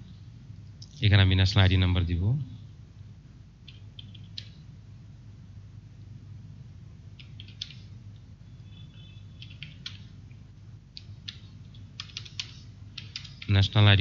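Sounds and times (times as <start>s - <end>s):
steady low hum: 0.0s - 14.0s
keyboard keystrokes: 3.7s - 4.6s, 7.2s - 7.9s, 9.4s - 10.1s, 10.9s - 13.5s.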